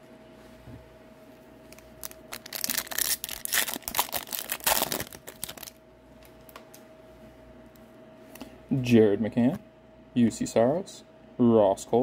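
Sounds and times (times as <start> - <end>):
wrapper tearing and crinkling: 1.7 - 5.8.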